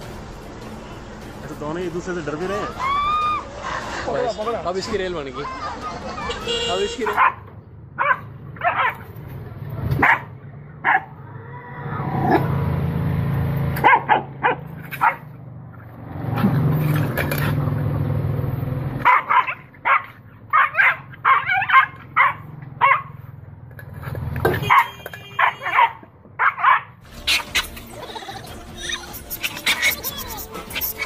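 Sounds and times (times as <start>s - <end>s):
dog barking and yipping: 7.0s - 7.4s, 8.0s - 9.1s, 10.0s - 11.2s, 13.8s - 15.3s, 19.0s - 23.2s, 24.6s - 31.0s.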